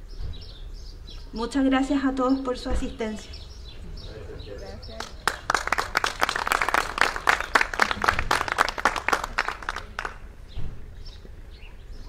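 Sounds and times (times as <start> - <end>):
audience applause: 5.0 - 10.2.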